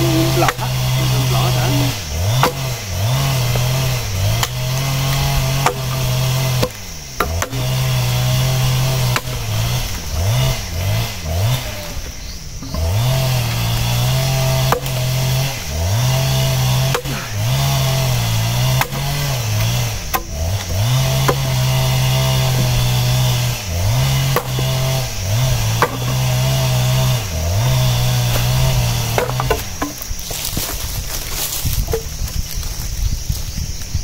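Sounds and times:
log splitter engine bogging: 0.0s - 32.2s
logs cracking as they split: 3.5s - 7.8s, 27.8s - 33.4s.

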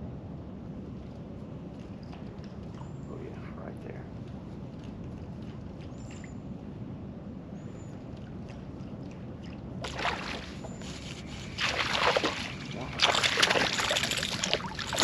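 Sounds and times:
fish splashing and thrashing: 8.8s - 15.0s
fish striking with splash: 9.8s - 10.6s, 11.6s - 15.0s.

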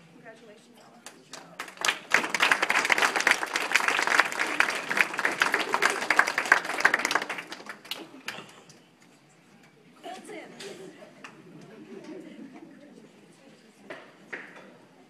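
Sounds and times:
audience applauding: 1.1s - 8.8s.

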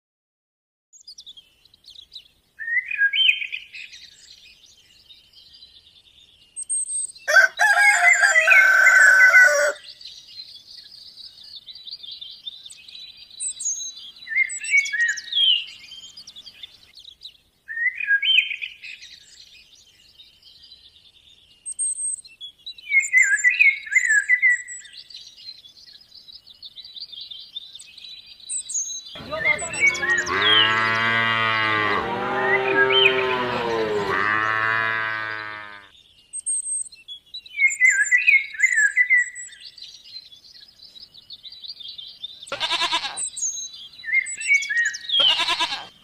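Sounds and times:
songbirds chirping: 1.0s - 46.0s
rooster crowing: 7.3s - 9.9s, 29.2s - 35.9s.

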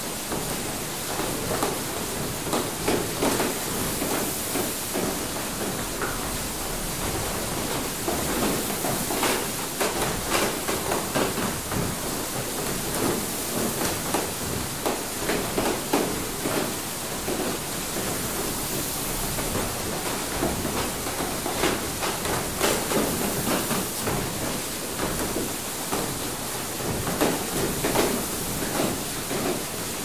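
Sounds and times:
mill machinery knocking: 0.2s - 30.0s.

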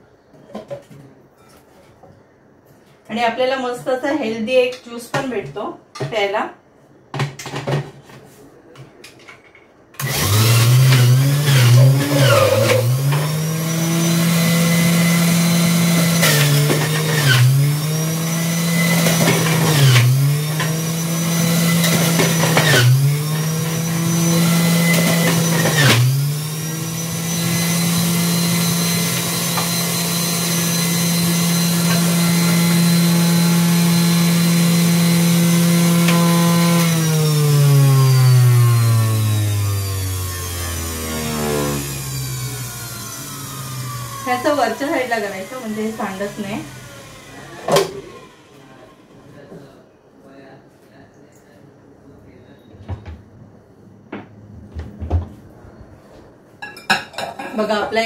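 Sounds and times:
juicer motor running: 10.0s - 49.2s.

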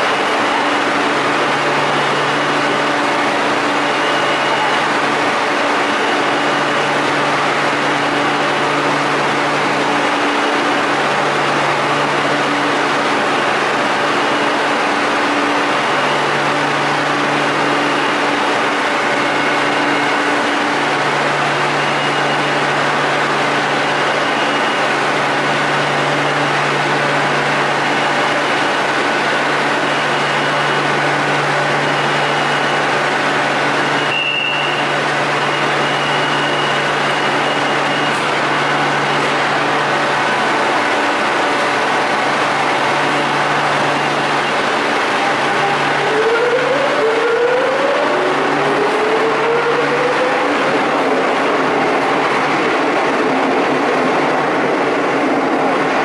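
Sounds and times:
train equipment hum: 22.5s - 56.0s
high beep: 33.8s - 39.4s.

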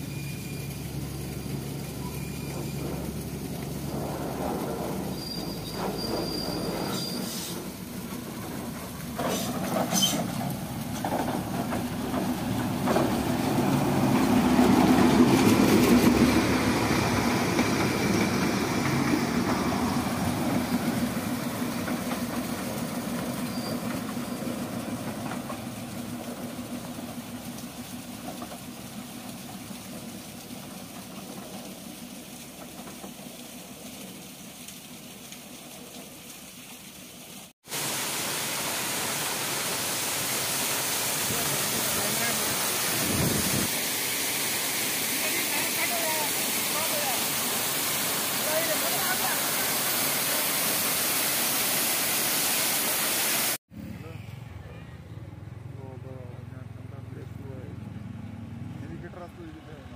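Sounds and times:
train wheels rattling on rails: 0.8s - 34.1s.

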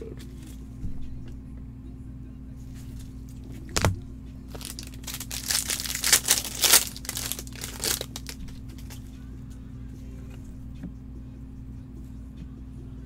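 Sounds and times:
plastic wrapper crinkling and tearing: 3.6s - 9.1s.

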